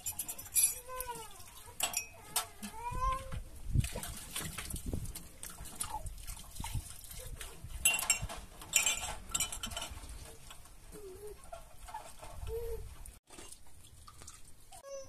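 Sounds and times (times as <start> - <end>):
ringing clattering bursts: 0.0 - 0.8, 1.8 - 2.3
knocks and clinks: 0.0 - 3.1, 7.8 - 10.7.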